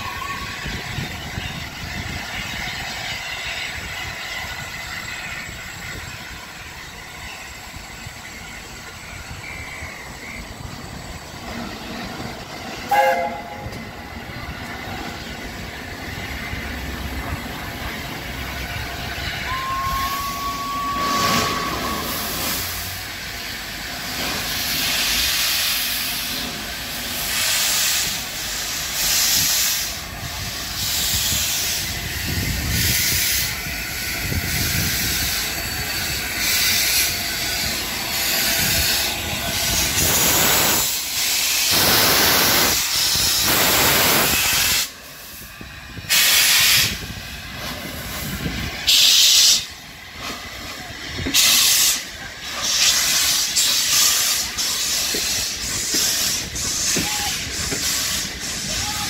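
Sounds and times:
steam locomotive hissing: 0.0s - 59.0s
loud steam bursts: 15.5s - 59.0s.

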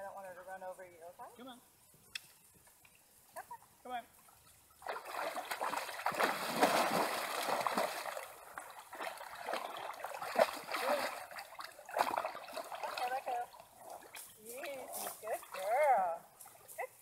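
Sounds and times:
horse legs splashing water: 4.2s - 16.7s.

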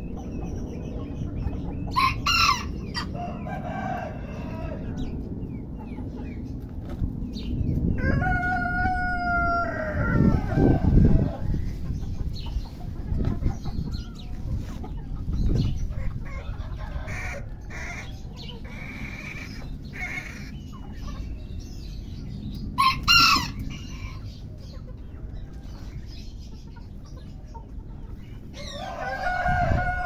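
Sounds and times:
chicken clucking: 0.0s - 30.0s
rooster crowing: 2.0s - 5.1s, 8.0s - 11.4s, 22.8s - 24.2s, 28.6s - 30.0s.

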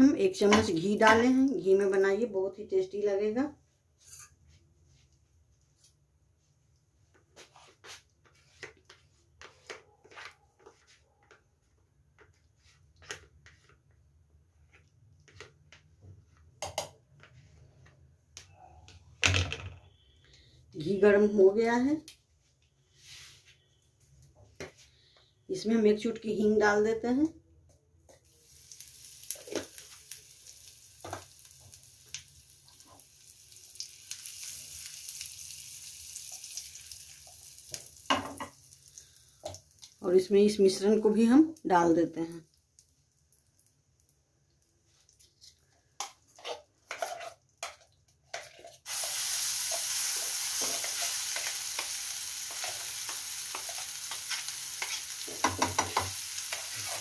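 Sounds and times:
spice sizzling in hot ghee: 0.0s - 2.3s, 28.2s - 44.2s, 46.0s - 57.0s
kitchenware clicking and knocking: 55.4s - 56.1s.

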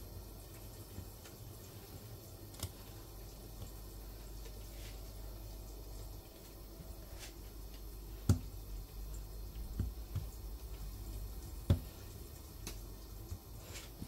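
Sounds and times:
low steady hum: 0.0s - 14.0s
soft taps of dough handling: 6.4s - 8.6s, 9.5s - 14.0s.

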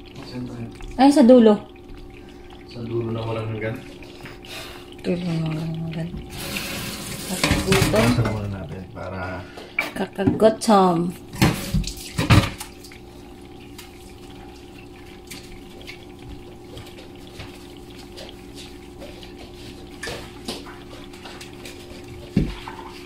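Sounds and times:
metal pot and lid clattering: 7.0s - 8.6s.

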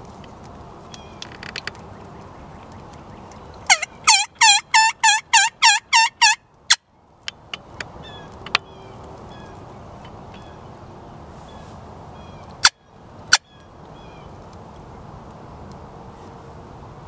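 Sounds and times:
turkey yelping: 3.6s - 6.8s.

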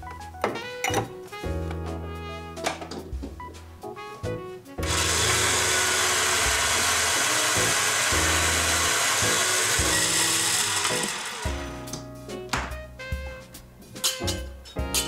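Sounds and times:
coffee grinder grinding beans: 4.8s - 11.8s.

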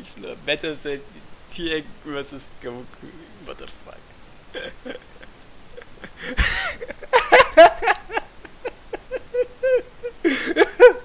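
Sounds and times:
man laughing loudly: 4.5s - 11.0s.

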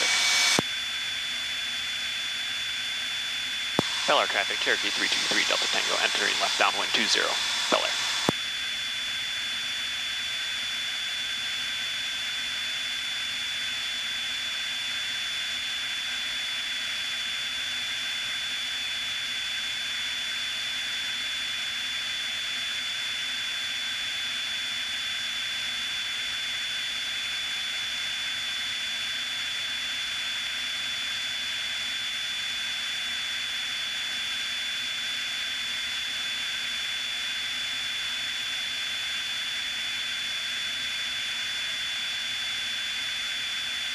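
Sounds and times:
high-pitched whine: 0.0s - 8.6s
propeller aircraft engine drone: 0.0s - 43.9s.

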